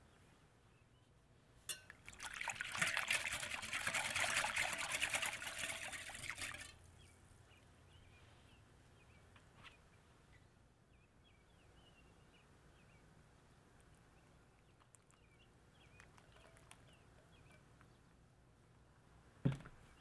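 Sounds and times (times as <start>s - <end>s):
whisk clinking against glass: 1.7s - 2.0s
liquid sloshing: 1.9s - 6.8s.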